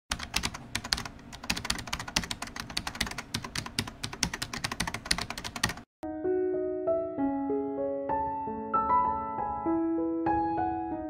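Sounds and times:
rapid irregular clicking: 0:00.1 - 0:05.9.

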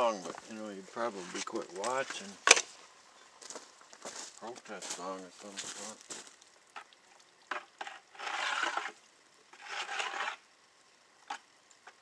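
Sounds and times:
mortar scraping in a pail: 0:00.0 - 0:02.4, 0:07.5 - 0:10.5.

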